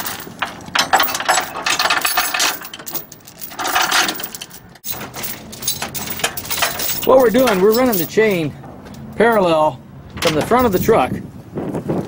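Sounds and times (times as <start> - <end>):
steel chain clinking and rattling: 0.0 - 9.6, 10.2 - 10.9.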